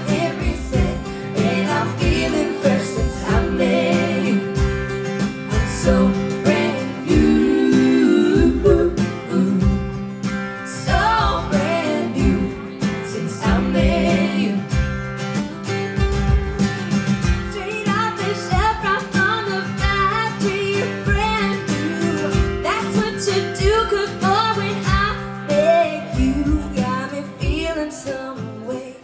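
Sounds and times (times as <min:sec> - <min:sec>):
women singing: 0:00.0 - 0:15.0, 0:17.5 - 0:29.0
acoustic guitars with steady beat: 0:00.0 - 0:29.0.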